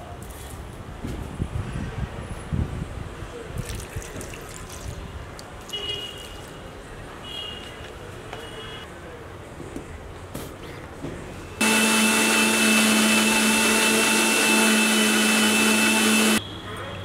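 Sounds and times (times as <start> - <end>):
mixer grinder running: 11.6 - 16.4.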